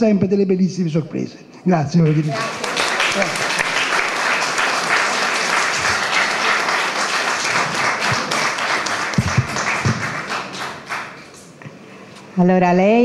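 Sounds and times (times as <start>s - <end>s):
audience applauding: 2.1s - 11.6s.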